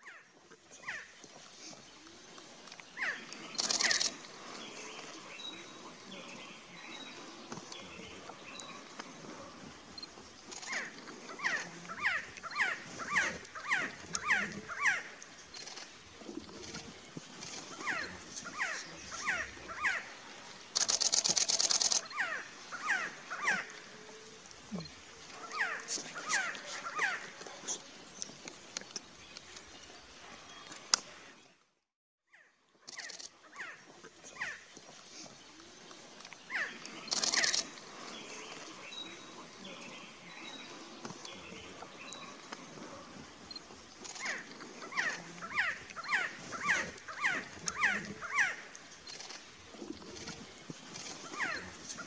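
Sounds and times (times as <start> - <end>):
faint clicks: 2.4 - 4.4, 20.7 - 22.2, 30.6 - 31.1, 35.9 - 37.9.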